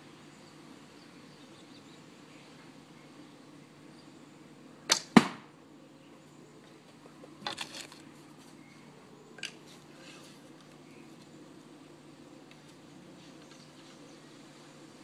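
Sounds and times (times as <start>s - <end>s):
arrow thumping into target: 4.9s - 5.5s.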